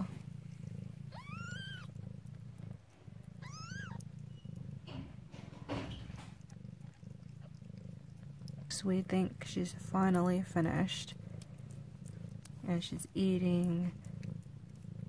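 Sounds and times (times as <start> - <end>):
cat purring: 0.0 - 15.0
cat mewing: 1.1 - 2.0, 3.4 - 4.0.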